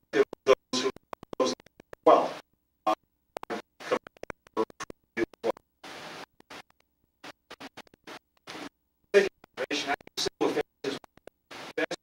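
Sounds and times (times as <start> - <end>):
choppy fragmented audio: 0.0 - 12.0.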